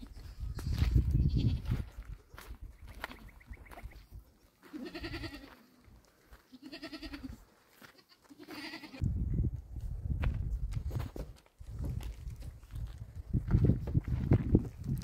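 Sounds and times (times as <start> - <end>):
livestock bleating: 4.6 - 5.7, 6.4 - 9.0.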